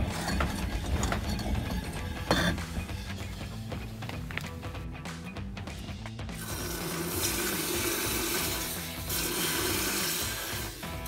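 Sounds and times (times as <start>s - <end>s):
hot steel sizzling in liquid: 6.4s - 11.0s.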